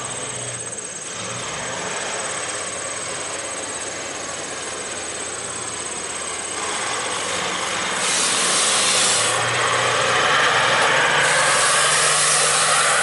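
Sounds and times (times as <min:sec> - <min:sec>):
truck diesel engine under load: 0:00.0 - 0:13.0
tyres on gravel: 0:00.0 - 0:13.0.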